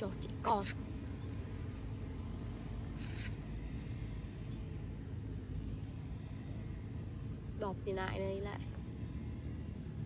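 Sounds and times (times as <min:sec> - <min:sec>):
low outdoor rumble: 0:00.0 - 0:10.0.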